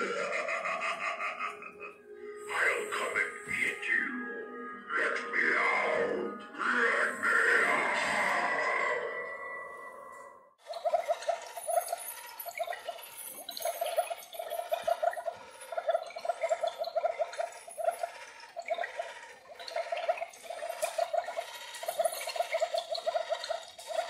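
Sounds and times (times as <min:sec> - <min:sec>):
recorded bubbling water effect: 0:10.6 - 0:24.0.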